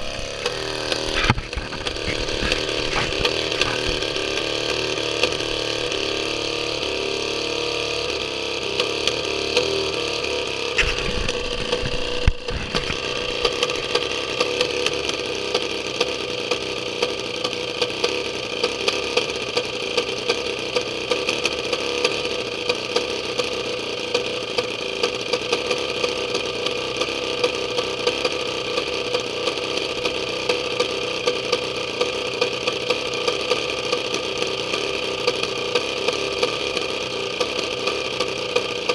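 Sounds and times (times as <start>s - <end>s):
chainsaw engine idling: 0.0s - 38.9s
engine knock: 0.0s - 38.9s.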